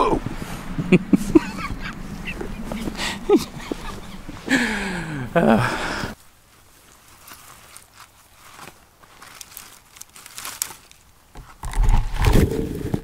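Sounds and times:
dry twigs crackling and snapping: 0:06.7 - 0:11.8.

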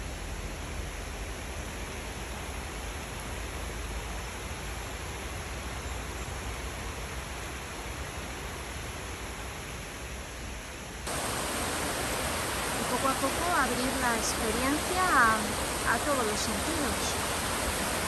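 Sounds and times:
water cascading over rocks: 0:10.9 - 0:18.0
stream flowing over rocks: 0:11.1 - 0:18.0.

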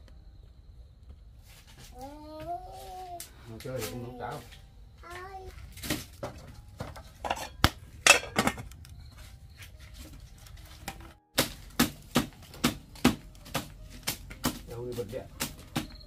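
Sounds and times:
cooking pot and lid clinking: 0:06.8 - 0:08.7
stick slapping a woven mat: 0:10.8 - 0:16.0.

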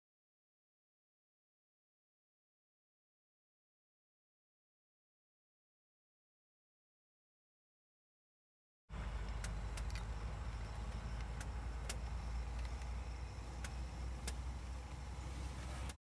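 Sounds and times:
handling clicks: 0:09.2 - 0:14.5.

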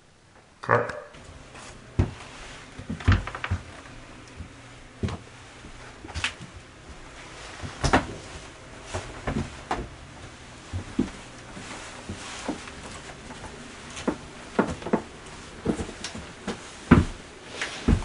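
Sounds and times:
knocks and thumps: 0:14.0 - 0:17.2.

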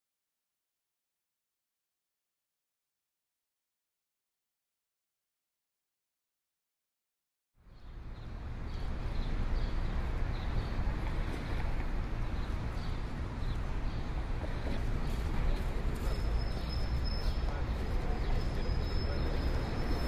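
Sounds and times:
outdoor background noise: 0:07.6 - 0:20.0.

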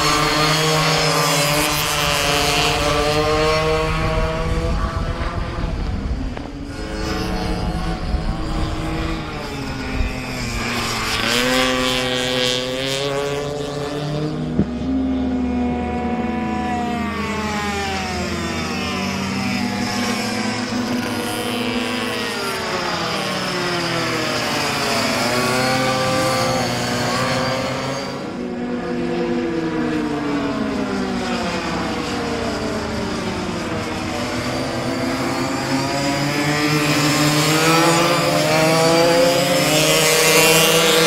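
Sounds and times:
small racing engines revving: 0:00.0 - 0:41.0.

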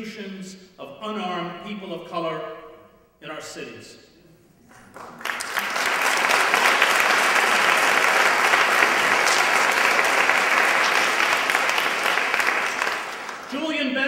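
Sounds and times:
audience applauding: 0:04.7 - 0:13.7.

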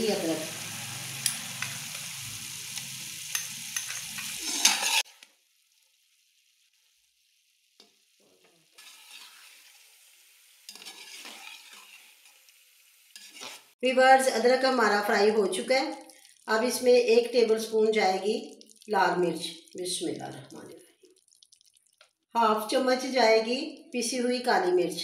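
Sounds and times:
chicken sizzling in oil: 0:00.0 - 0:24.7
metal spatula scraping pan: 0:03.8 - 0:05.1, 0:08.8 - 0:09.9, 0:10.6 - 0:12.4, 0:13.1 - 0:13.8.

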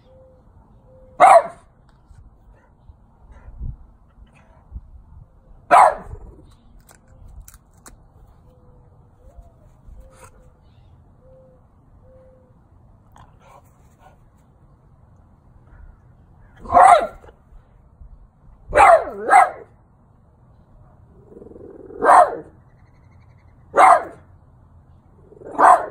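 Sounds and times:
dog barking: 0:01.2 - 0:01.7, 0:05.7 - 0:06.2, 0:16.6 - 0:17.3, 0:18.7 - 0:19.7, 0:22.0 - 0:22.5, 0:23.7 - 0:24.2, 0:25.4 - 0:25.9.

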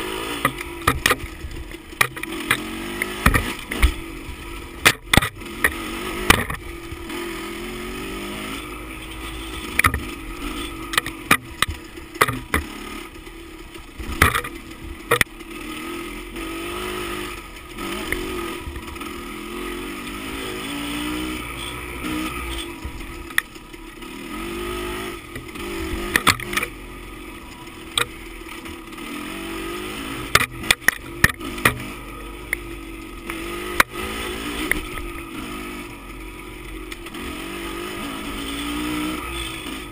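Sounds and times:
bike knocking and rattling: 0:00.0 - 0:07.3, 0:09.1 - 0:15.7, 0:21.1 - 0:24.3, 0:25.0 - 0:35.4
dirt bike engine: 0:00.0 - 0:39.9.

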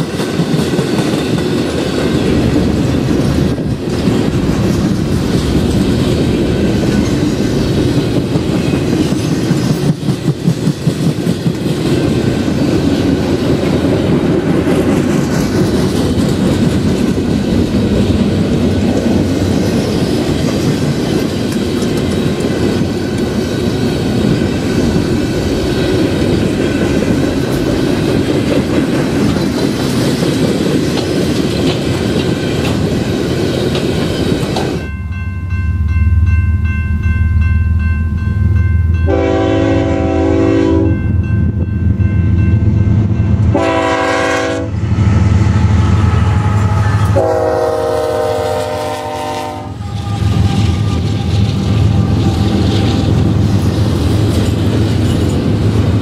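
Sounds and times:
diesel locomotive hum: 0:00.0 - 0:56.0
train wheels rumbling on rails: 0:00.0 - 0:56.0
train air horn: 0:39.1 - 0:41.0, 0:43.5 - 0:53.2.

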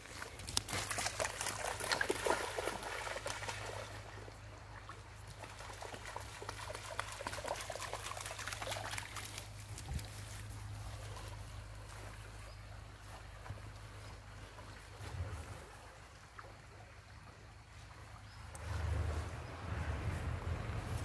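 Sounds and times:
water lapping: 0:00.0 - 0:21.0
dog splashing in water: 0:00.1 - 0:04.2, 0:05.3 - 0:11.5.

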